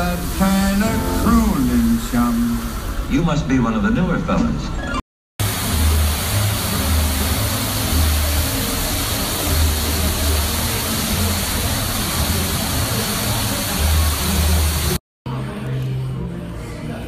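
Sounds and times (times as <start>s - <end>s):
waterfall rushing: 0.0s - 3.2s, 5.4s - 15.0s.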